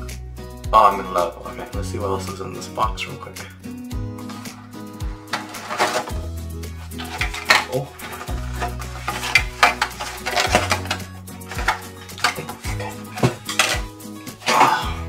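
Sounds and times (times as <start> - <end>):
music with low notes: 0.0 - 15.0
packaging clattering and knocking: 4.2 - 14.7.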